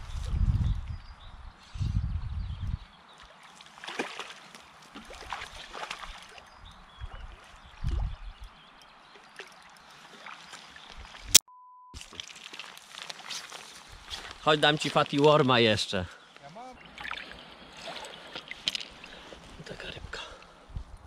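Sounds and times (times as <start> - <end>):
water splashing and trickling: 2.6 - 11.4, 12.0 - 16.0, 16.6 - 20.5.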